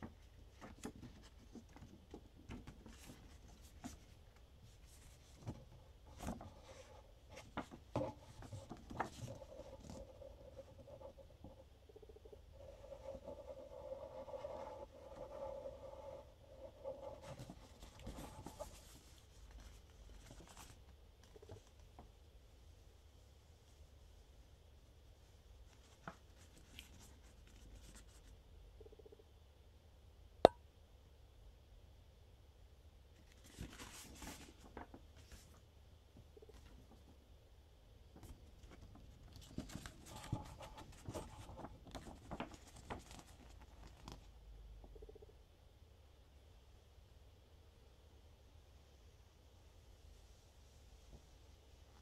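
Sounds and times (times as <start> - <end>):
paper rustling and crinkling: 0.0 - 11.0, 33.2 - 35.6, 38.2 - 44.3.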